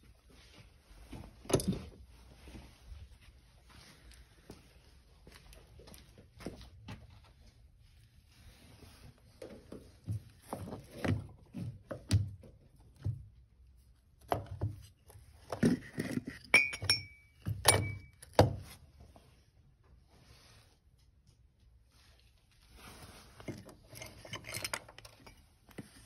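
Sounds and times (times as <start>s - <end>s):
metal parts clinking and knocking: 15.7s - 18.4s, 23.5s - 26.0s
metallic rings: 16.5s - 18.2s.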